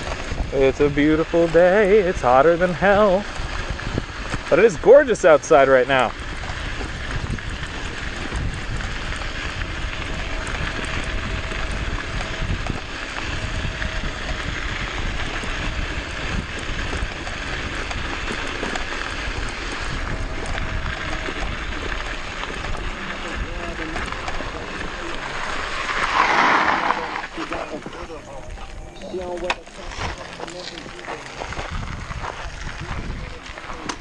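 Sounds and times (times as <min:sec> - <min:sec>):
electric motor whine: 0:00.0 - 0:34.0
wind buffeting microphone: 0:00.0 - 0:34.0
tyres hissing: 0:24.9 - 0:28.3.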